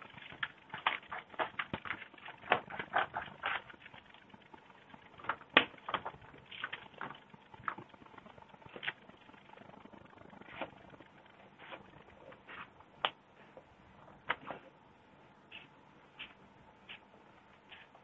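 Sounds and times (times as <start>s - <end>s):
paper rustling: 0.0s - 4.0s.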